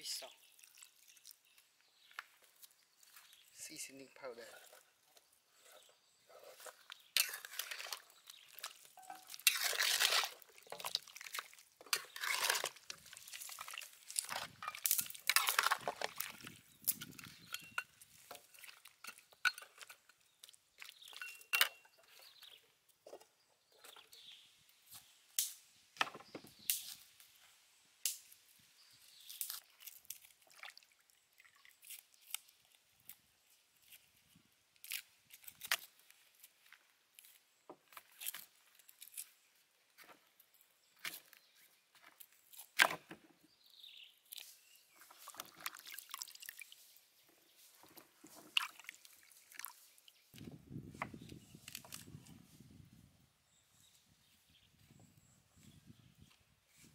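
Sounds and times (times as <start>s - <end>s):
ladle scraping bones in wok: 6.5s - 8.2s, 9.0s - 16.3s
liquid sloshing: 7.2s - 16.6s, 48.3s - 49.8s.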